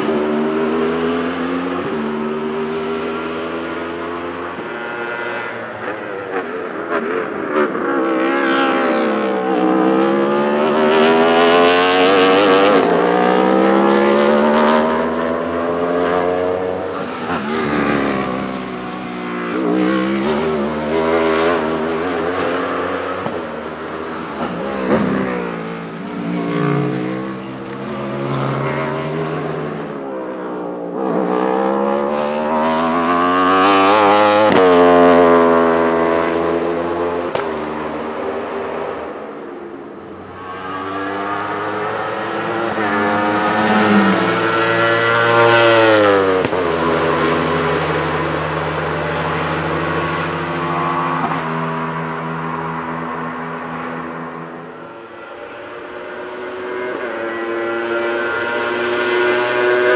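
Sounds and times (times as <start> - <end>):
race car engine accelerating: 31.0 - 54.8.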